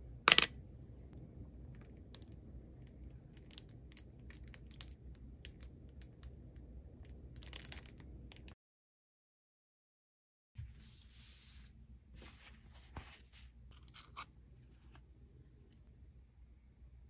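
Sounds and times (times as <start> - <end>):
coin clinking into metal dish: 0.3 - 0.6.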